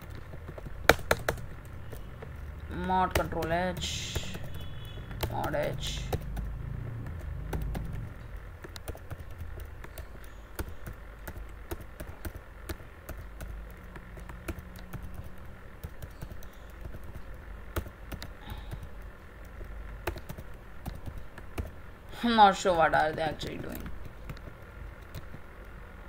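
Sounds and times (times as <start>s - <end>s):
computer keyboard clicks: 0.0s - 2.1s, 4.1s - 21.8s
low background hum: 0.0s - 26.0s.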